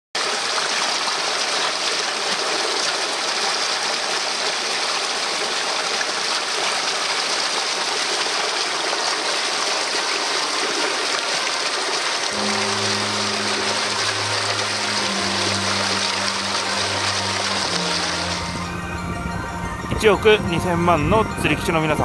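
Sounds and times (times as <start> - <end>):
stream rushing over rocks: 0.2 - 19.0.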